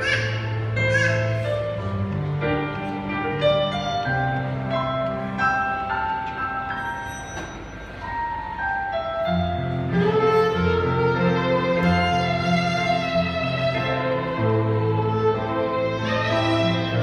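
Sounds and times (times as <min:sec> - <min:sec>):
electronic keyboard accompaniment: 0:00.0 - 0:17.0.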